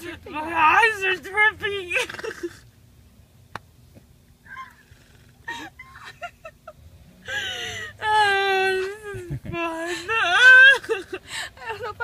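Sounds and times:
woman sobbing: 1.8s - 2.6s, 5.4s - 12.0s
woman laughing in squeaky bursts: 4.5s - 6.8s
woman whimpering: 7.3s - 12.0s.

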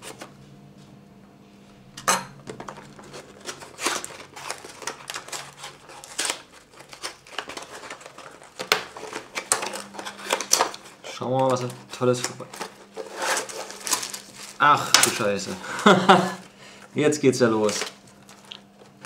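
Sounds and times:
cardboard rustling and scraping: 0.0s - 0.3s, 2.5s - 16.5s
cardboard snapping: 2.7s - 14.3s.

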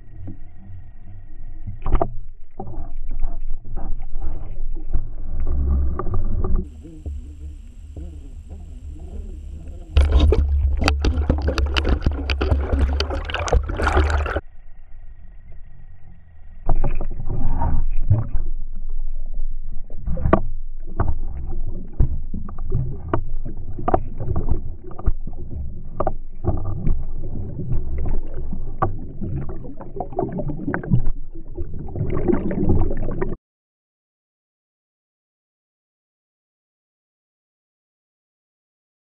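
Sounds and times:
water noise: 0.0s - 14.4s, 16.0s - 33.4s
underwater clicks: 1.7s - 14.4s, 20.0s - 33.4s
low rumble: 5.1s - 19.7s
muffled underwater knocks: 6.4s - 14.4s.

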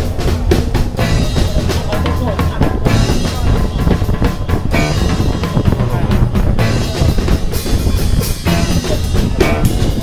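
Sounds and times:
music with drums: 0.0s - 10.0s.

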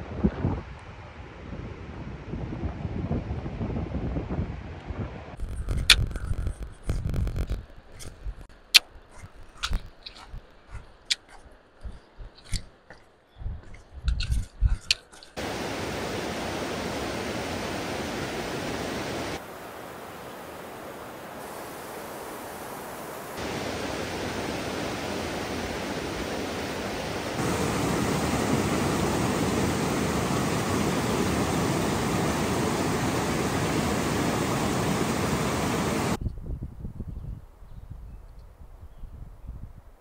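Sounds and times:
flowing water rushing: 15.4s - 36.2s.

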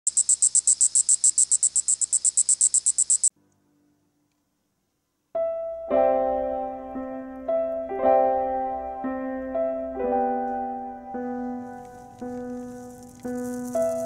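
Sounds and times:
high-pitched chirping trill: 0.0s - 3.3s
soft piano music: 5.3s - 14.0s.

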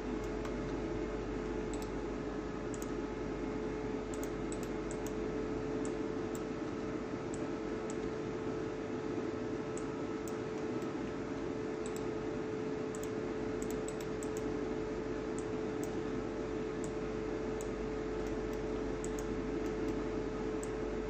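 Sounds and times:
steady hum with hiss: 0.0s - 21.0s
computer mouse clicks: 1.7s - 2.0s, 2.7s - 3.0s, 4.1s - 5.2s, 5.8s - 6.5s, 9.7s - 11.0s, 11.8s - 12.1s, 12.9s - 14.5s, 16.8s - 17.0s, 17.6s - 20.8s.

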